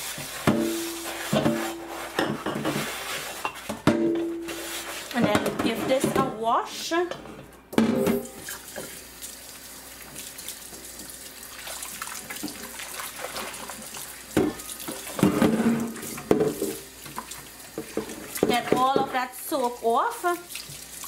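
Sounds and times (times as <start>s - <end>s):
hand swishing soapy water: 0.0s - 3.5s, 4.5s - 6.0s, 11.5s - 14.3s
tap water running into wok: 8.2s - 21.0s.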